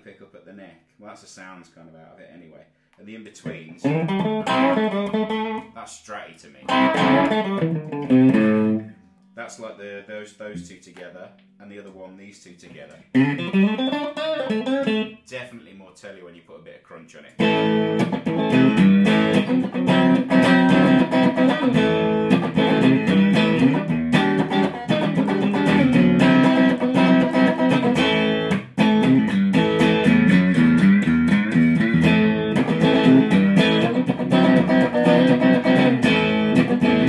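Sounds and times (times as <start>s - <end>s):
distorted electric guitar chords: 3.8s - 5.6s, 6.7s - 9.0s, 13.1s - 15.1s, 17.4s - 37.0s.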